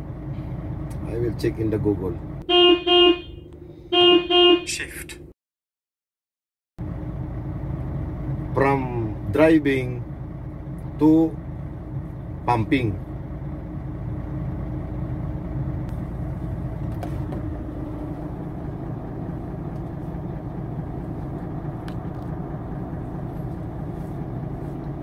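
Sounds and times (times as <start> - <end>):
diesel truck engine idling: 6.8 - 25.0.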